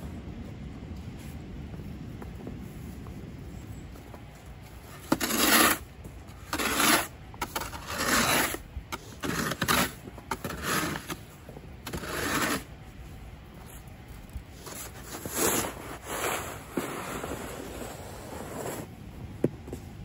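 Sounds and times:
snow shovel scraping: 4.7s - 12.8s, 14.5s - 18.9s.

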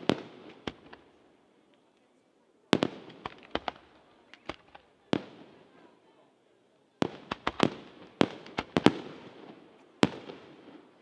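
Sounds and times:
fireworks bursting with bangs: 0.0s - 1.4s, 2.6s - 5.9s, 7.0s - 11.0s.

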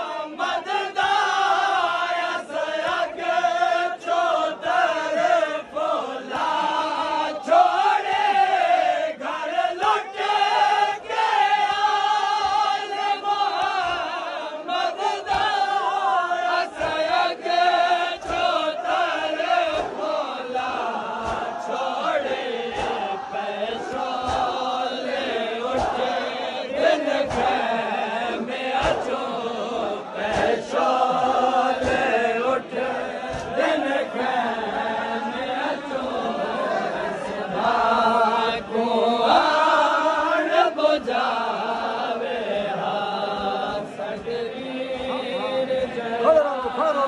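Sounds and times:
crowd of men chanting: 0.0s - 47.0s
sharp hand slaps: 18.2s - 26.3s, 27.2s - 27.7s, 28.7s - 29.2s, 30.2s - 32.6s, 33.3s - 33.6s.

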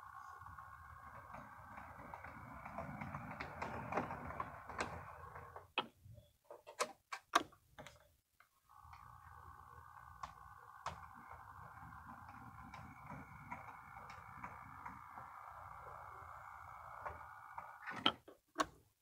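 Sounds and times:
model train motor humming: 0.0s - 5.7s, 8.7s - 18.1s.

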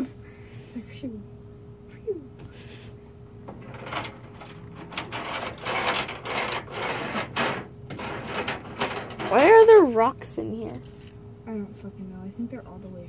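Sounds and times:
rummaging scrapes and rattles: 3.5s - 11.0s.

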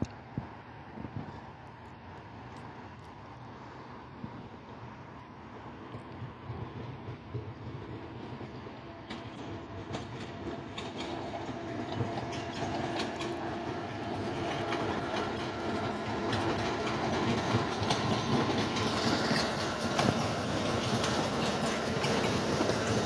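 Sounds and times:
train wheels clicking over rail joints: 5.8s - 23.0s.

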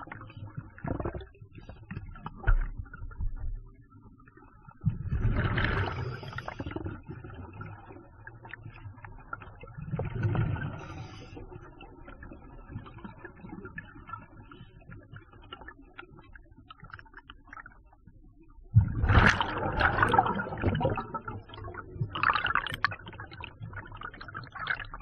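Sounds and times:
underwater breath bubbling: 5.1s - 7.3s, 9.9s - 11.9s.

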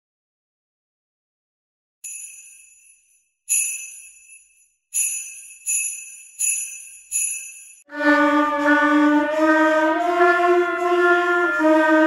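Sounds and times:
jingle bells shaken: 2.0s - 7.9s
band woodwinds holding note: 7.9s - 12.0s.

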